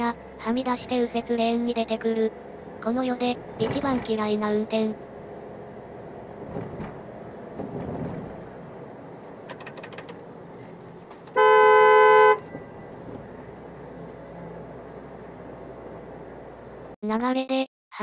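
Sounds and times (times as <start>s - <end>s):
road noise inside moving car: 0.0s - 17.0s
quick clicks: 9.4s - 10.2s
car horn two-note: 11.3s - 12.7s.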